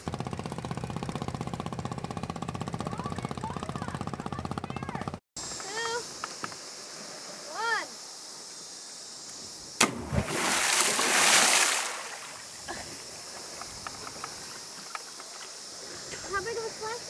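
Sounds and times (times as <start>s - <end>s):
body smacking into water: 9.8s - 12.4s
water splashing: 9.8s - 17.0s.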